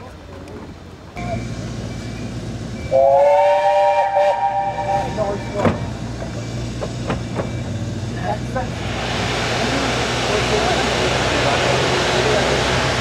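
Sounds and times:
steam locomotive whistle: 2.9 - 5.6.

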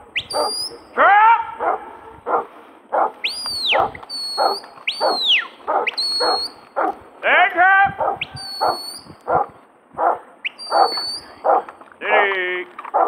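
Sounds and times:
dog barking: 0.3 - 0.8, 1.6 - 7.0, 8.0 - 12.3
person whistling commands: 3.2 - 6.6, 8.2 - 9.1, 10.5 - 11.4.

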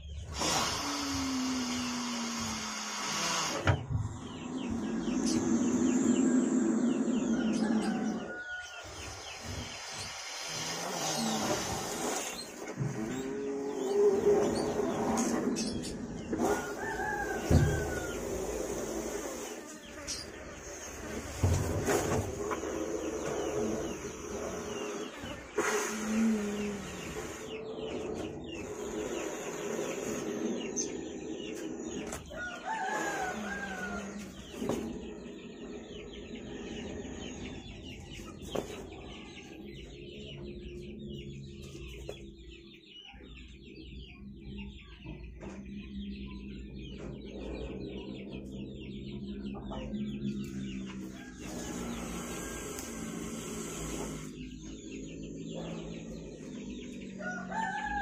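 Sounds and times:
chickens clucking: 1.9 - 58.0
rooster crowing: 7.2 - 9.1, 16.5 - 18.6, 32.3 - 34.4, 57.2 - 58.0.

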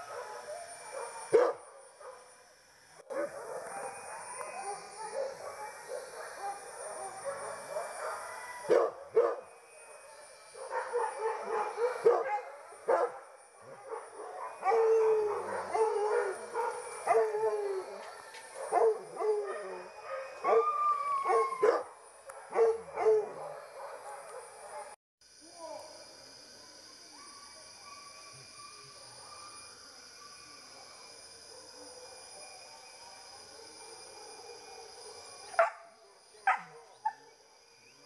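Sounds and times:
dogs barking and baying: 0.0 - 2.3, 3.1 - 25.0, 33.6 - 37.3
dogs howling: 0.0 - 2.4, 3.1 - 25.0, 27.1 - 35.8, 36.4 - 37.4.

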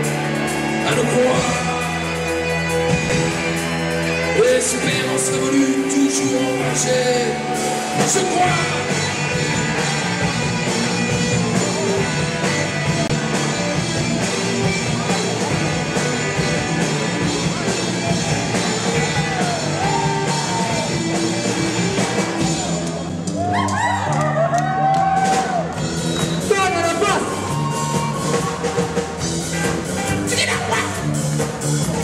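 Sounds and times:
rock band playing live: 0.0 - 32.0.

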